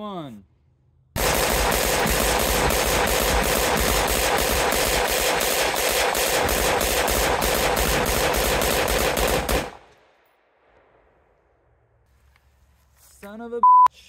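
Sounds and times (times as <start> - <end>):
rifle rapid gunfire: 1.2 - 10.0.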